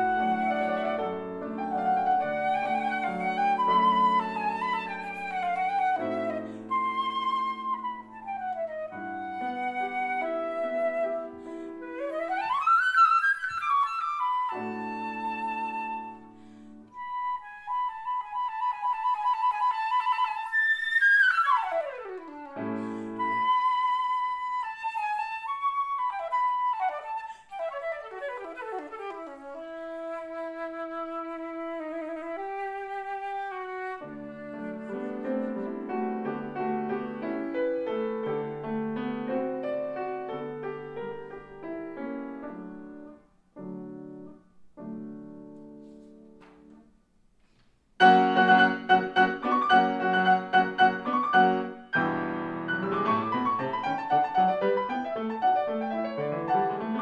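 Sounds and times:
piano chords: 0:00.0 - 0:12.5, 0:34.0 - 0:46.9, 0:48.0 - 0:57.0
concert flute playing: 0:00.0 - 0:38.5, 0:48.0 - 0:57.0.

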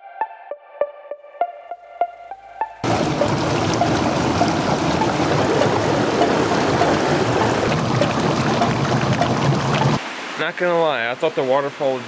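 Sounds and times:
stream rushing over rocks: 0:02.8 - 0:12.0.

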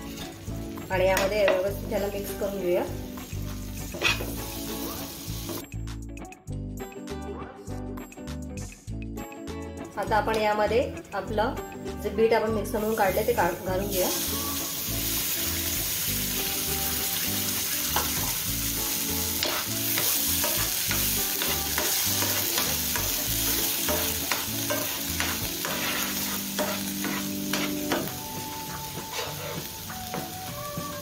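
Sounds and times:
spoon scraping a pan: 0:03.8 - 0:04.4, 0:19.3 - 0:28.2, 0:29.0 - 0:29.7.

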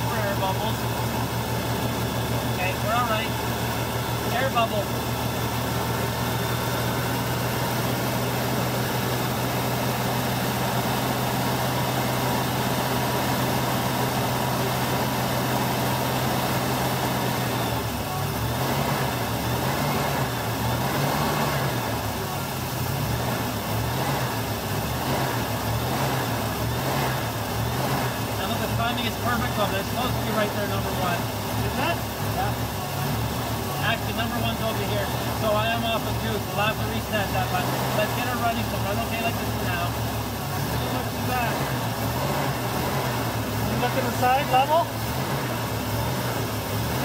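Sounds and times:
engine fast idle: 0:00.0 - 0:47.0
engine revving: 0:00.0 - 0:47.0.

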